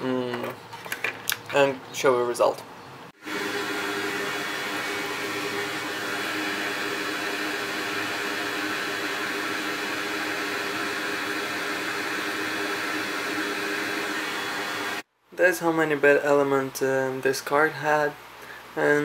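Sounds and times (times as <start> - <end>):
electric fan whirring: 3.2 - 15.0.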